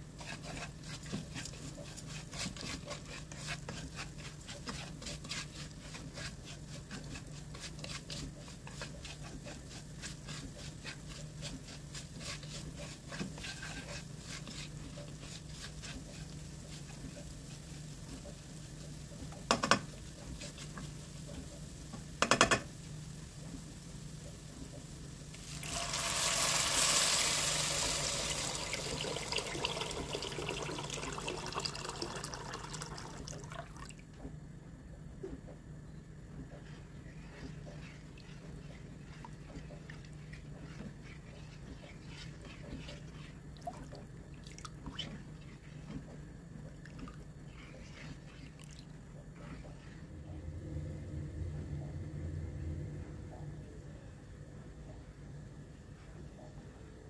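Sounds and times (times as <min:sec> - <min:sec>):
spatula scraping in a pot: 0:00.0 - 0:33.2, 0:36.3 - 0:50.4
oil sizzling: 0:00.0 - 0:33.9, 0:36.6 - 0:46.4
low steady hum: 0:05.7 - 0:57.0
water pouring into a pot: 0:25.4 - 0:34.0.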